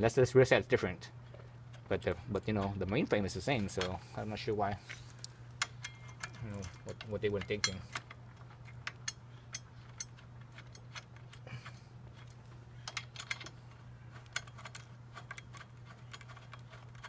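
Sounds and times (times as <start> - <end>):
steady low hum: 0.0 - 17.0
metallic clicks of washers: 4.9 - 17.0.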